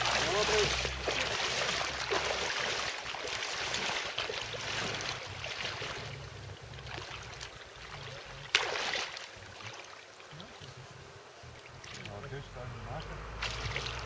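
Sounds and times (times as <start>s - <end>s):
loud splash: 0.0s - 6.2s, 6.8s - 10.0s, 13.4s - 14.0s
water sloshing around wading legs: 0.0s - 14.0s.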